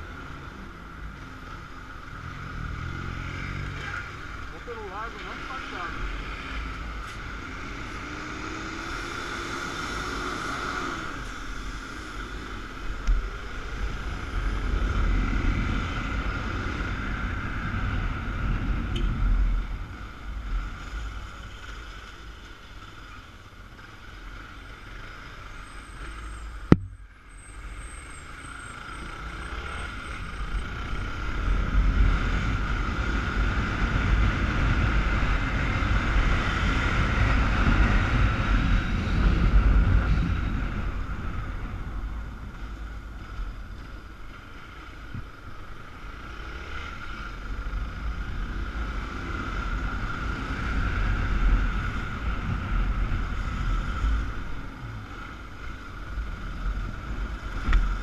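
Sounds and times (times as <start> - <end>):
wind rumble: 30.4 - 46.1, 47.2 - 58.0.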